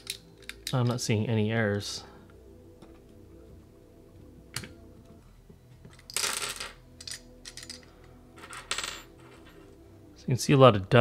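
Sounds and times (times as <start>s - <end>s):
metal parts clattering on tabletop: 5.9s - 9.6s.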